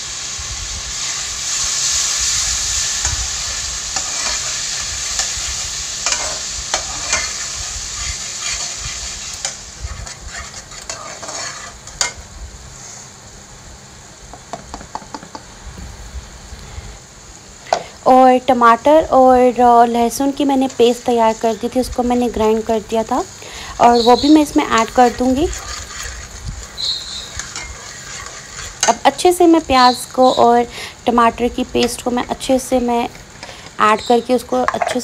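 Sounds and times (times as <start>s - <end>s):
masala sizzling in oil: 0.0s - 35.0s
metal spatula scraping a pan: 3.6s - 12.2s, 23.8s - 29.2s.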